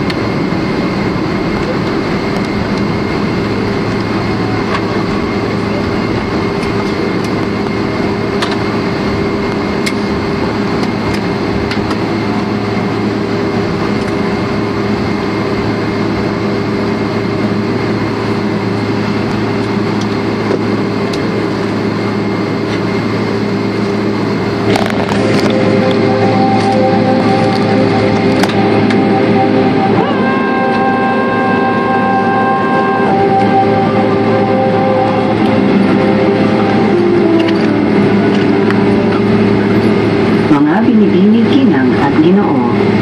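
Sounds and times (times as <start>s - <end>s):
airliner cabin engine hum: 0.0s - 43.0s
cabin music: 24.8s - 41.6s.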